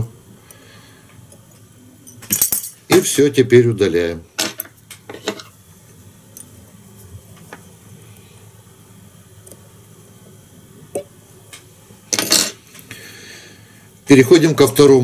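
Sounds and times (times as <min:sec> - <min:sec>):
tools clattering: 0:02.0 - 0:03.0.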